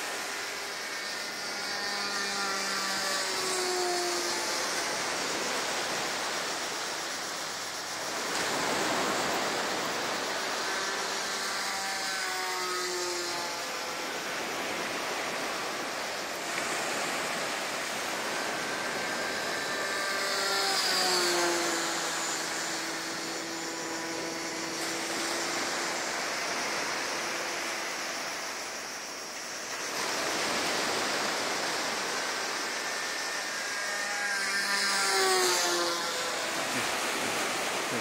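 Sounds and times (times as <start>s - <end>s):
model plane engine buzzing: 0.0s - 38.0s
wind: 0.0s - 38.0s.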